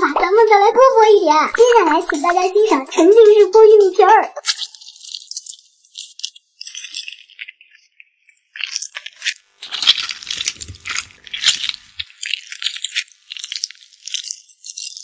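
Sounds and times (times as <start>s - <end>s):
crisp crackling and scraping: 4.4s - 15.0s.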